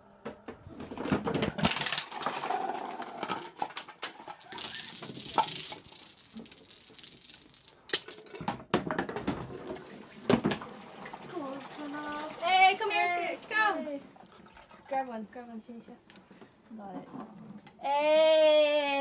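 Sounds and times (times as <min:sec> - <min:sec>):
dominoes toppling: 0:01.5 - 0:08.2.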